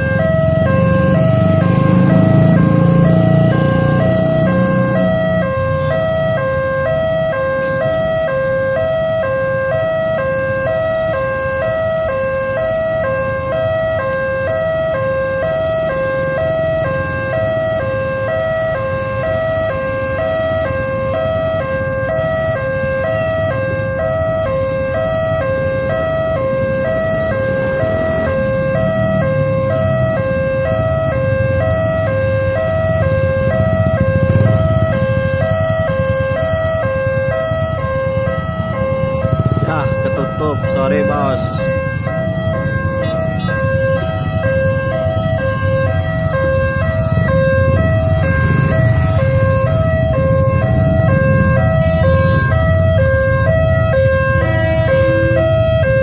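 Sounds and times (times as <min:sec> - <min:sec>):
motorcycle engines idling: 0:00.0 - 0:09.1, 0:26.0 - 0:55.8
level crossing two-tone alarm: 0:00.0 - 0:56.0.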